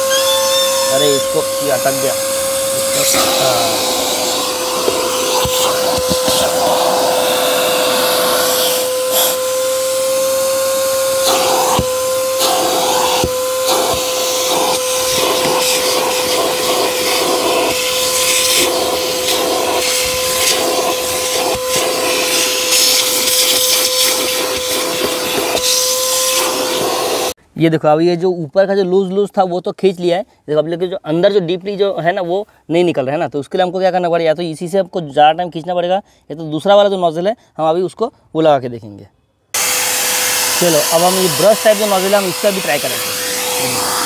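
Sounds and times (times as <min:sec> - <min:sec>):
vacuum cleaner running: 0:00.0 - 0:27.4, 0:39.6 - 0:44.0.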